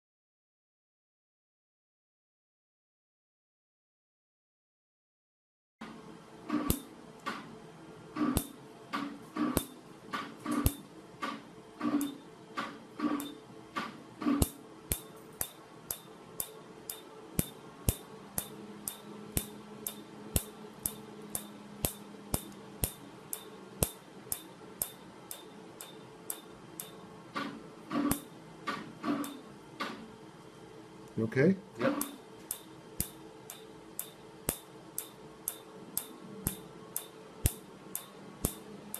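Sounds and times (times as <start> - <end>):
laser pulse snapping: 6.5 - 7.4, 8.3 - 30.0, 31.8 - 38.7.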